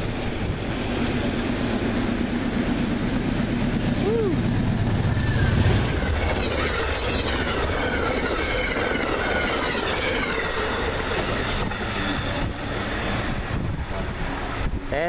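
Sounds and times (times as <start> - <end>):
diesel locomotive engine: 0.0 - 15.0
train rail noise: 0.0 - 15.0
high wheel squeal: 4.2 - 13.4.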